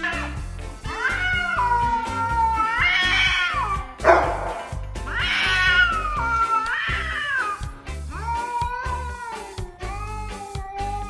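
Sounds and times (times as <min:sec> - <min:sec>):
background music with steady beat: 0:00.0 - 0:11.0
cat yowling: 0:00.9 - 0:11.0
cat hissing: 0:01.0 - 0:07.6.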